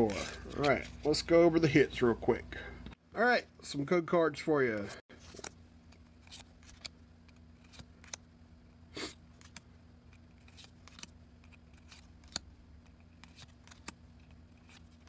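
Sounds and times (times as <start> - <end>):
faint steady hum: 0.0 - 15.0
cardboard cards clicking and rustling: 5.2 - 8.2, 9.3 - 15.0.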